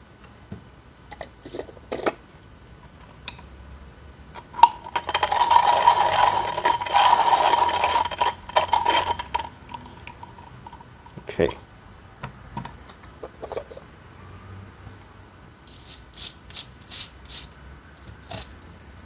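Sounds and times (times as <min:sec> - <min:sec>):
hand grinder crunching coffee beans: 0:04.9 - 0:09.5.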